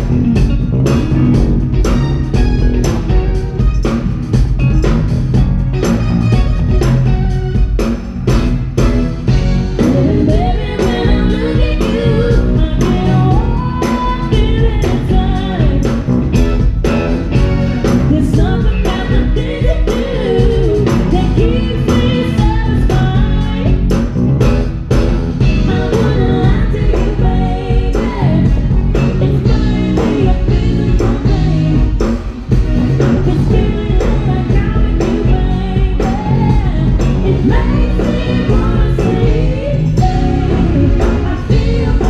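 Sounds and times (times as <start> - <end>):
live band playing: 0.0 - 42.0
woman singing lead: 9.7 - 16.7, 17.9 - 24.0, 25.4 - 42.0.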